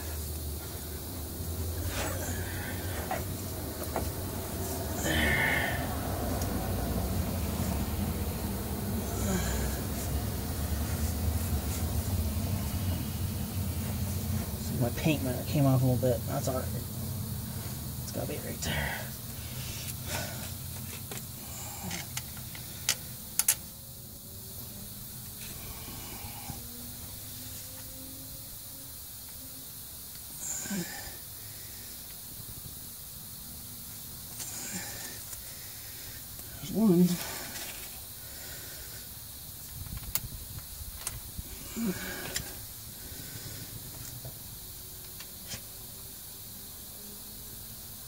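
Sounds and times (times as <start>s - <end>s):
steady background hiss: 0.0s - 48.0s.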